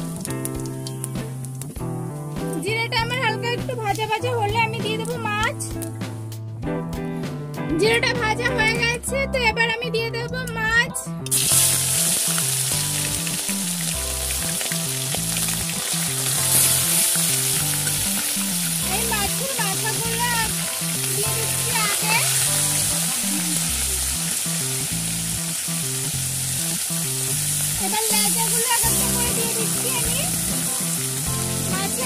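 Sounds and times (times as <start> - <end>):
fish sizzling in hot oil: 0.0 - 1.8, 11.3 - 32.0
background music: 0.0 - 32.0.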